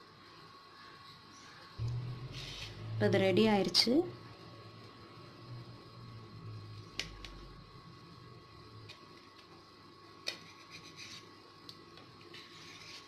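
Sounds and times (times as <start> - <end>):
faint steady hum: 0.0 - 13.0
knife scraping softly: 12.3 - 13.0.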